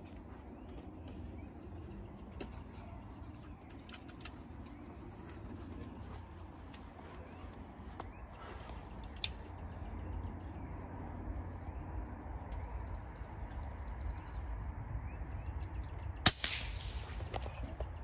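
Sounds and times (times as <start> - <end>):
bird chirping: 0.0 - 16.2
air rifle shot: 16.2 - 17.4.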